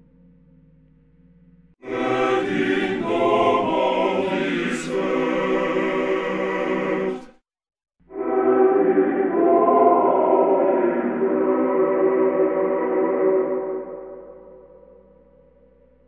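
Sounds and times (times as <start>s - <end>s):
choir-like singing with reverb: 1.8s - 7.4s, 8.1s - 15.2s.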